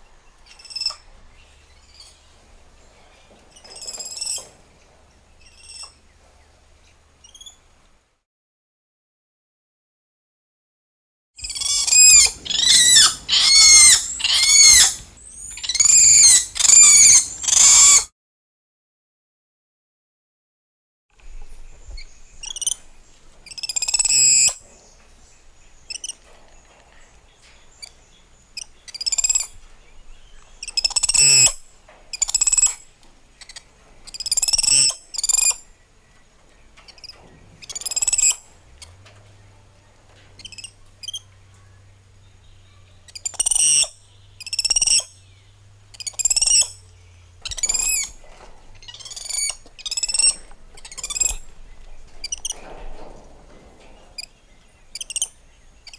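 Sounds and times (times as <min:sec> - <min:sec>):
monkeys chirping calls: 0:00.5 - 0:01.0, 0:11.4 - 0:18.1, 0:22.4 - 0:22.8, 0:23.4 - 0:24.6, 0:28.6 - 0:29.6, 0:30.6 - 0:32.8, 0:33.4 - 0:35.6, 0:36.9 - 0:38.4, 0:40.4 - 0:41.3, 0:42.6 - 0:45.3, 0:45.9 - 0:46.8, 0:47.4 - 0:48.2, 0:48.8 - 0:51.5, 0:52.2 - 0:52.6, 0:54.9 - 0:55.9.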